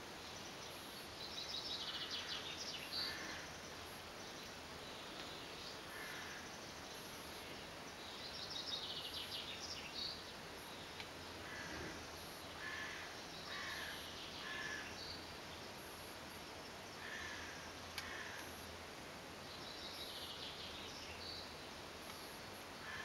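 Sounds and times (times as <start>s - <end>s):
birds calling: 0.0s - 15.2s
outdoor background noise: 0.0s - 23.0s.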